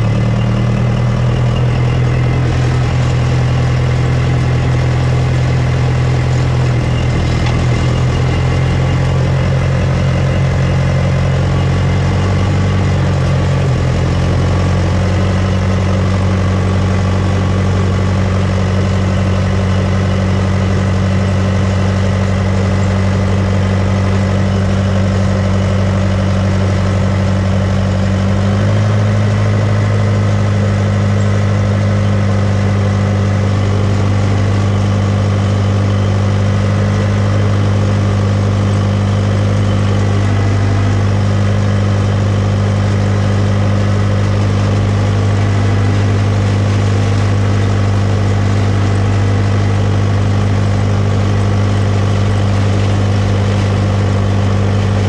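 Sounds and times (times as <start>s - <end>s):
bulldozer diesel engine running: 0.0s - 55.0s.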